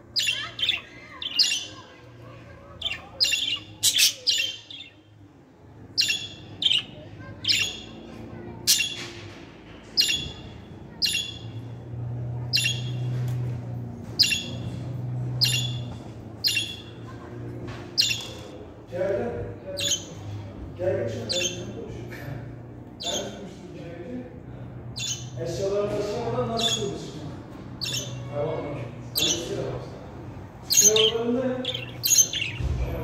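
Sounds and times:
budgerigar chirping: 0.2 - 1.8, 2.8 - 5.0, 6.0 - 8.0, 10.0 - 11.6, 12.5 - 13.0, 14.2 - 14.6, 15.4 - 17.0, 18.0 - 18.4, 19.8 - 20.1, 21.3 - 21.7, 25.0 - 25.4, 26.6 - 27.0, 27.8 - 28.3, 29.2 - 29.5, 30.7 - 32.6.

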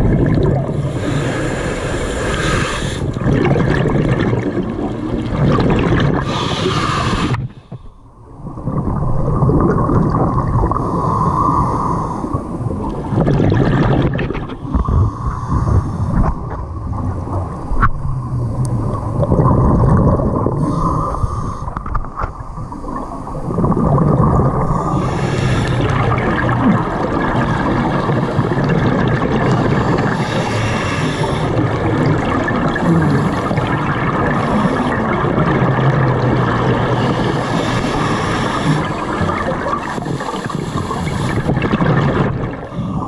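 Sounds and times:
bubbling exhalations: 0.0 - 22.1, 22.8 - 43.0
scuba regulator breathing underwater: 0.4 - 3.3, 6.0 - 8.2, 10.1 - 16.7, 18.0 - 23.6, 24.5 - 27.0, 29.4 - 31.8, 32.7 - 35.4, 36.8 - 43.0.

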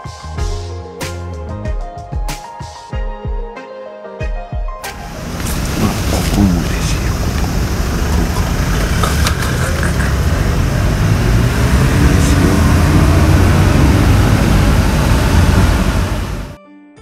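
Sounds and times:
car engine idling: 4.9 - 16.6.

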